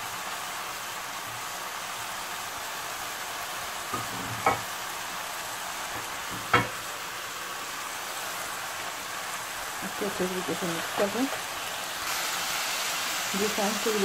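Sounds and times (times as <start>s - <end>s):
food sizzling in a hot pan: 0.0s - 14.0s
spatula knocking against pan: 6.3s - 6.8s.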